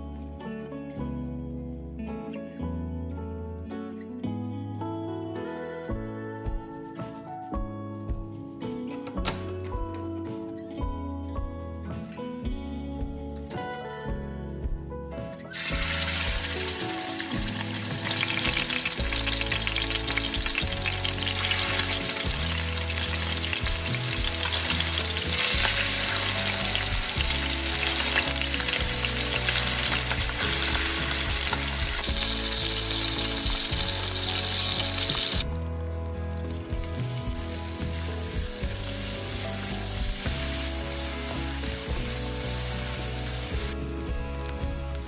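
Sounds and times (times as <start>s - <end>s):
food sizzling in hot oil: 15.5s - 35.5s, 36.3s - 45.0s.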